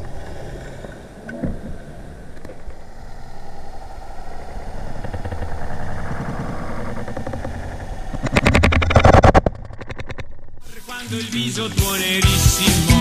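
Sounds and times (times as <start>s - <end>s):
fish call rattling clicks: 4.9s - 10.6s.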